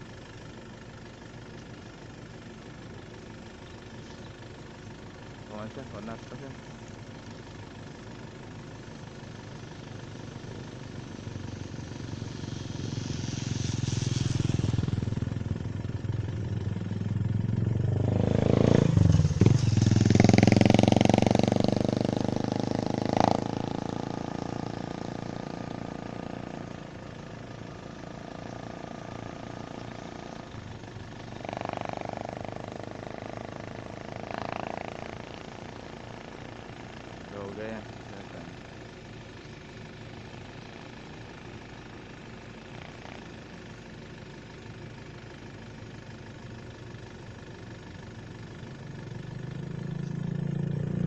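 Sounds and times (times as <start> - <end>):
motorcycle passing: 9.6 - 43.6, 48.8 - 51.0
motorcycle tricycle passing: 9.8 - 39.2, 48.7 - 51.0.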